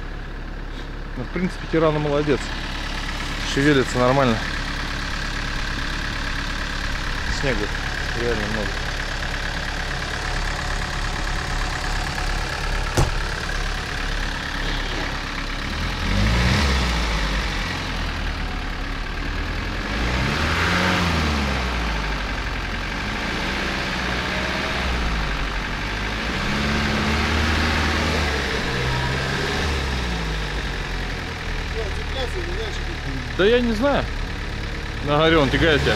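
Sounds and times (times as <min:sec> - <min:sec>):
engine revving: 0:01.9 - 0:35.9
sharp knock: 0:12.9 - 0:13.3.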